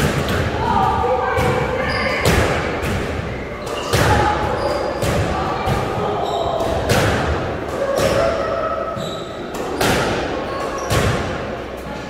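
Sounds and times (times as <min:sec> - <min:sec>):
squash ball smacks: 0:06.6 - 0:08.3, 0:09.6 - 0:11.4.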